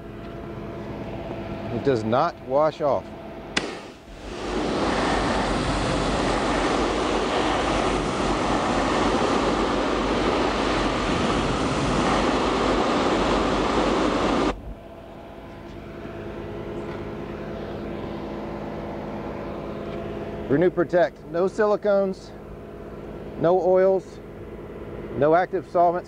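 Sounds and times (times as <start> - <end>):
pressure washer spray hissing: 3.6 - 14.5.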